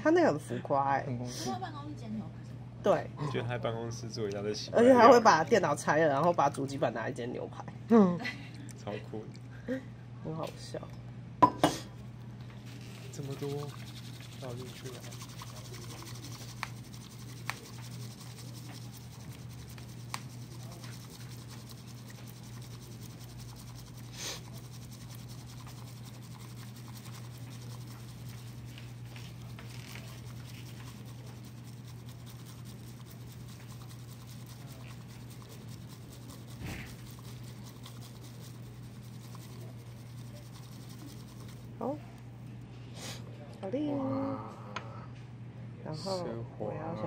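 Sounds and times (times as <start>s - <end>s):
constant low hum: 0.0s - 47.0s
whisk swishing in bowl: 12.6s - 42.1s.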